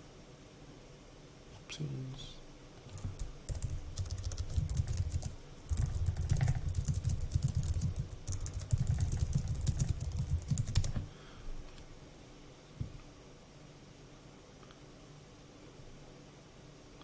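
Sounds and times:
computer keyboard typing: 0:02.8 - 0:11.1.

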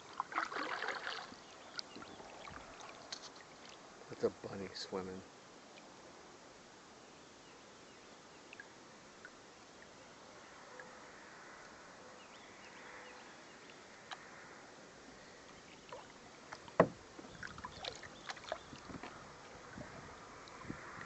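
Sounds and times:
paddle splashes and clicks: 0:00.0 - 0:03.8, 0:15.5 - 0:21.0
sharp knock: 0:16.8 - 0:17.0.

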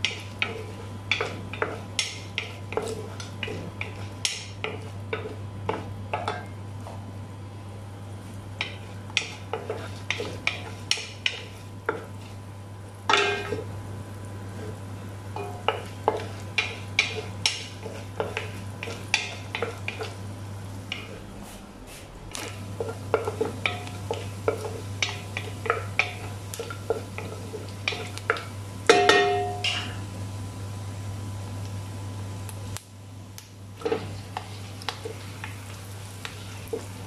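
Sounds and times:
wooden spoon scraping a pot: 0:00.0 - 0:05.8, 0:08.6 - 0:12.4, 0:22.7 - 0:28.2, 0:33.8 - 0:35.2.

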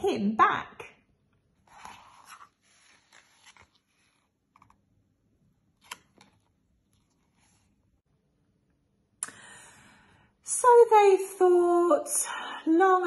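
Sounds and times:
book pages and flaps rustling: 0:01.6 - 0:04.9, 0:05.7 - 0:07.9.

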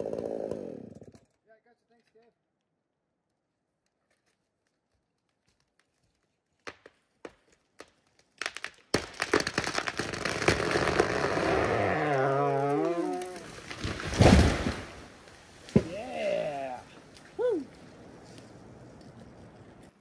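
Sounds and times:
wood cracking: 0:03.8 - 0:16.3
creak of tearing wood: 0:08.1 - 0:14.4
tree crashing through branches: 0:08.4 - 0:16.2.

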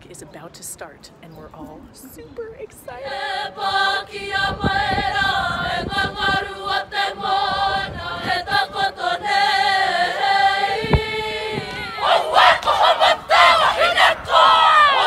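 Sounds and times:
group singing in harmony: 0:02.9 - 0:15.0
rhythmic shouted chanting: 0:03.0 - 0:15.0.

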